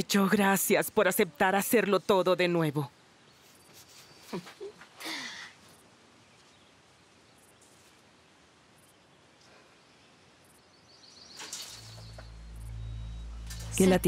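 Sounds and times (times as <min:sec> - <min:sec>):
soft sighing breath: 0:05.0 - 0:05.6.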